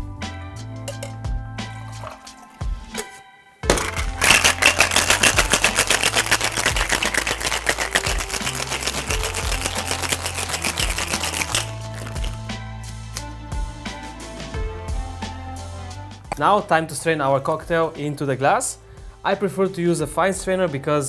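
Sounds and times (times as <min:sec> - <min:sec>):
background music: 0:00.0 - 0:21.0
ice rattling in cocktail shaker: 0:03.7 - 0:12.4.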